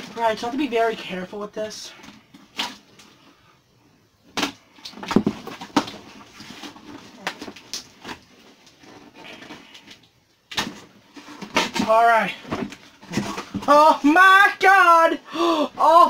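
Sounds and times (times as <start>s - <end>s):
cardboard scraping and rustling: 5.0s - 9.9s, 10.6s - 13.7s.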